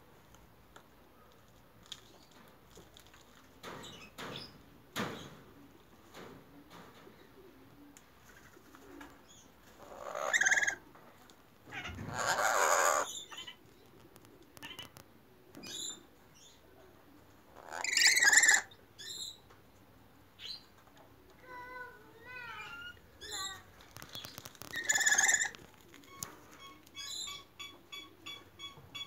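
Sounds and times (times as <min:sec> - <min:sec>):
lories squawking: 0:09.8 - 0:10.8, 0:11.8 - 0:13.6, 0:17.6 - 0:19.4, 0:22.5 - 0:29.0.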